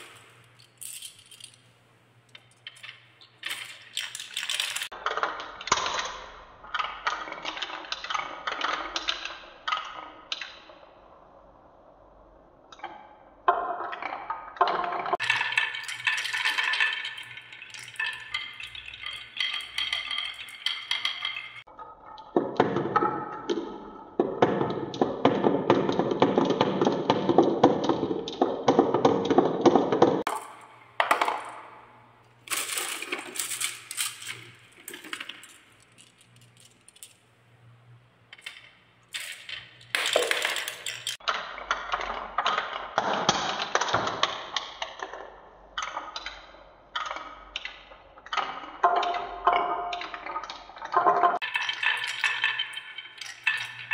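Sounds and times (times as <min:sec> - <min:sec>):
marbles rolling down wooden track: 0:02.3 - 0:09.3, 0:13.5 - 0:21.7, 0:22.4 - 0:37.2, 0:38.3 - 0:44.3, 0:48.3 - 0:53.9.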